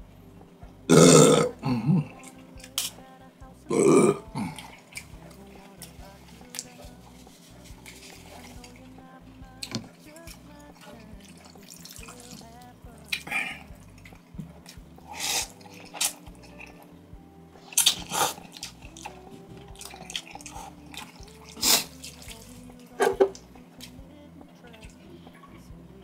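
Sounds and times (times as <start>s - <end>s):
background music: 0.0s - 26.0s
person slurping noodles: 15.0s - 16.1s, 17.7s - 18.7s, 19.8s - 22.0s.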